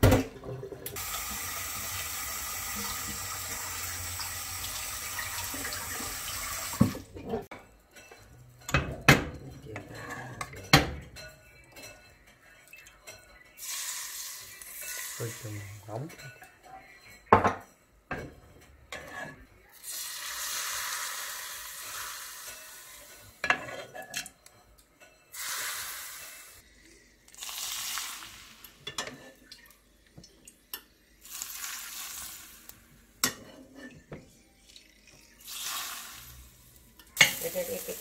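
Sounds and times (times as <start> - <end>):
hot oil sizzling: 1.0 - 7.0, 13.6 - 16.3, 19.7 - 23.6, 25.3 - 29.6, 30.6 - 33.4, 34.6 - 38.0.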